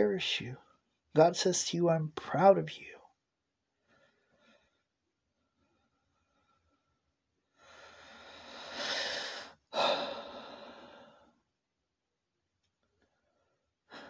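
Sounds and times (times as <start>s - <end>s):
man breathing deeply: 5.5s - 11.4s.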